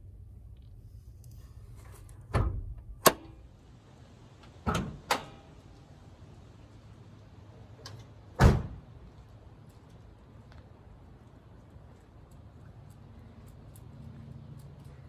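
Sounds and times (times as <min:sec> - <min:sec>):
sharp latch click: 0:02.4 - 0:03.4.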